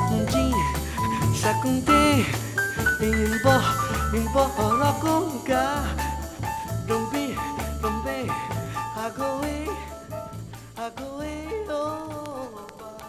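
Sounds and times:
person singing over a band: 0.0 - 6.0
samba record playing: 0.0 - 13.0.

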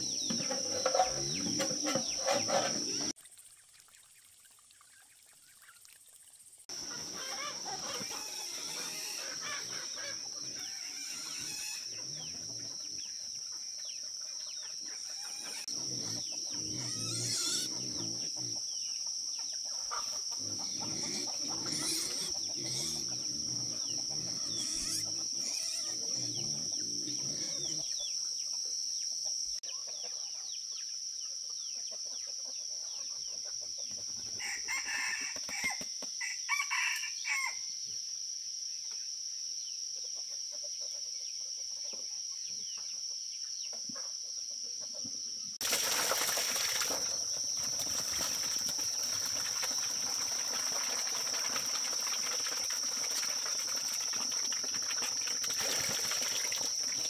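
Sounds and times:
chickens clucking: 0.0 - 3.1, 6.7 - 28.6, 29.2 - 30.6
rooster crowing: 34.4 - 37.7.

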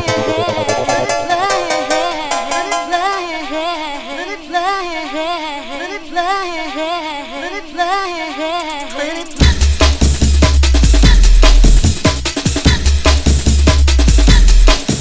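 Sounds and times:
drum roll: 0.0 - 3.1, 8.7 - 15.0
warbling melodic line: 0.0 - 3.4
heavy bass and drums: 9.4 - 15.0.

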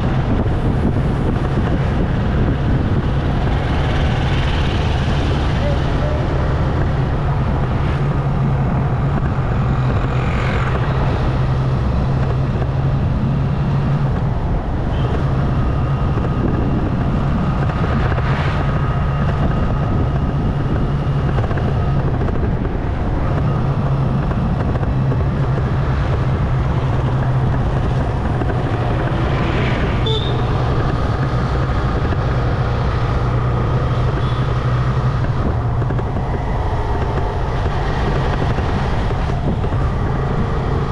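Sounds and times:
road and wind noise: 0.0 - 40.9
motorbike engine running: 19.2 - 40.9.

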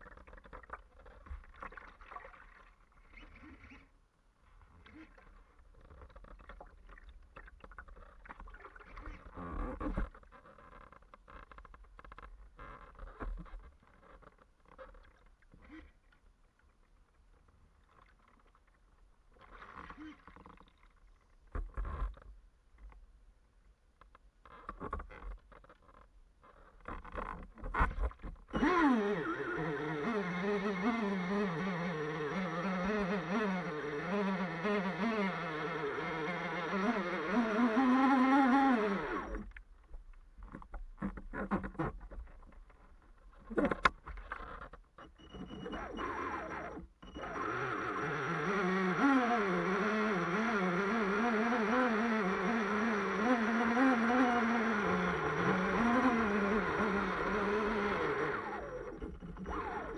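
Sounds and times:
small electric motor buzzing: 28.6 - 39.5, 45.4 - 59.9.

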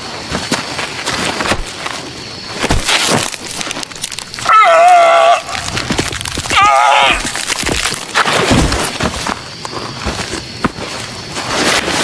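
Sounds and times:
gore cracking and crunching: 2.6 - 9.4.

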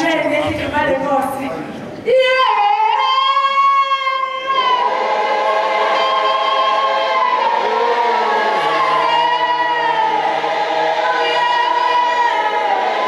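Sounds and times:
woman singing into a microphone: 2.0 - 4.9
congregation singing: 2.1 - 13.0.

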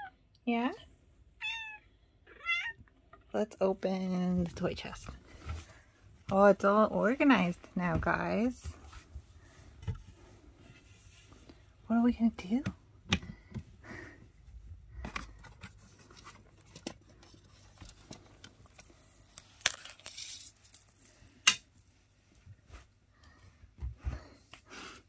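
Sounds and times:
high tinkling jingle: 18.4 - 22.4.

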